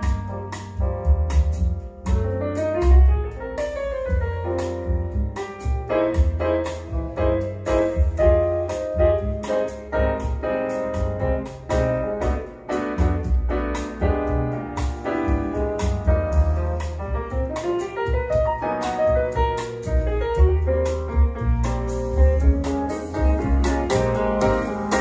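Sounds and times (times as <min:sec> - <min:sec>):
pulsing bass line: 0:00.0 - 0:17.5
jazz piano: 0:00.0 - 0:25.0.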